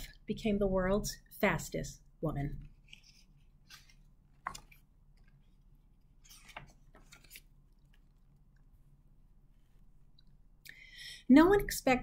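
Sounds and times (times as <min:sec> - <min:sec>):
book page flipping: 0:02.6 - 0:08.2
paper rustling: 0:02.6 - 0:08.2.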